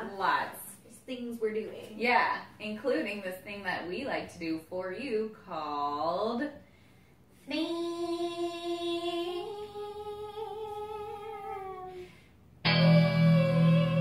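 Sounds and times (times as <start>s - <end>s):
lower sung or musical sound: 12.6s - 14.0s.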